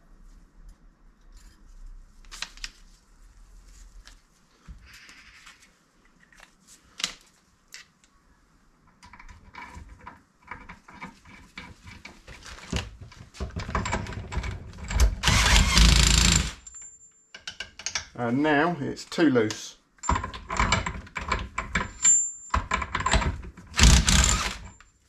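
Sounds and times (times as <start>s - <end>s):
impact wrench rattling: 20.0s - 24.7s.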